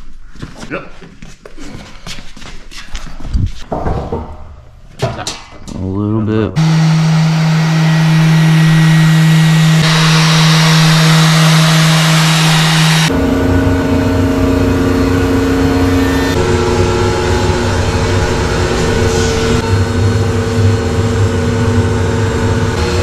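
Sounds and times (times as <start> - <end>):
orbital sander humming with hiss: 6.6 - 13.6
machine hum with low rumble: 6.6 - 23.0.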